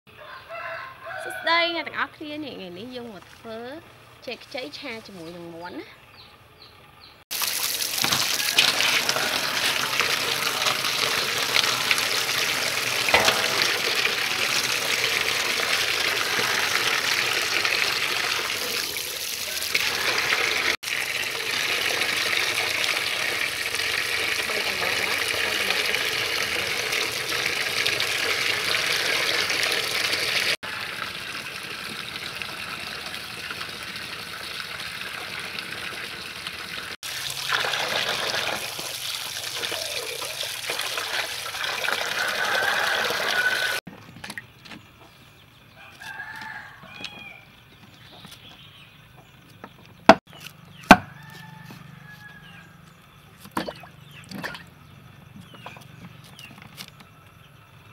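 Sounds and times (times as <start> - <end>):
water pouring into a metal basin: 7.3 - 43.8.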